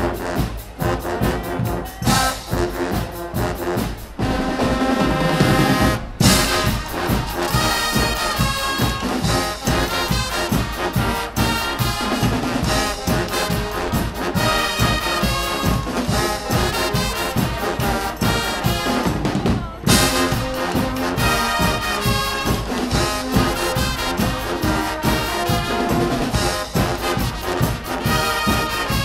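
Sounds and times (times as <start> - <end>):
brass band playing: 0.0 - 29.0
drum kit and cymbals beat: 0.0 - 29.0.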